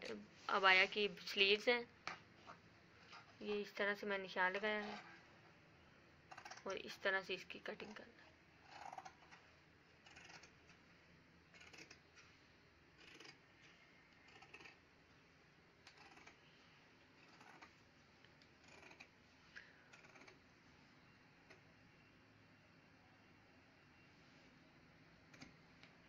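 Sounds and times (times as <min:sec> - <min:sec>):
scissors cutting cloth: 0:10.0 - 0:10.8, 0:11.5 - 0:12.2, 0:13.0 - 0:13.4, 0:18.6 - 0:19.1.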